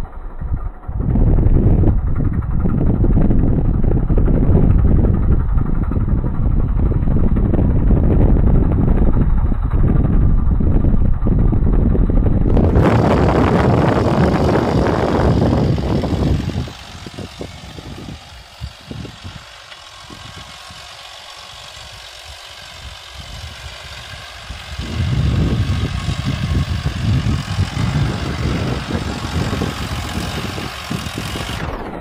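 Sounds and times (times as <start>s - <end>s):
diesel tractor engine driving past: 12.5s - 32.0s.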